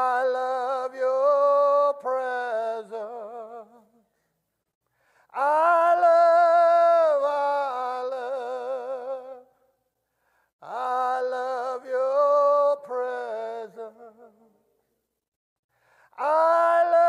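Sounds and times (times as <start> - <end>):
man singing unaccompanied: 0.0 - 4.0, 5.3 - 9.5, 10.6 - 14.5, 16.2 - 17.0.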